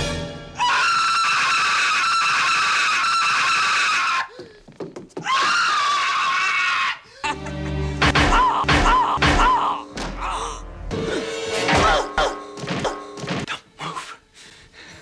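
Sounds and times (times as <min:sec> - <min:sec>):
man screaming in terror: 0:00.6 - 0:04.3, 0:05.2 - 0:07.0.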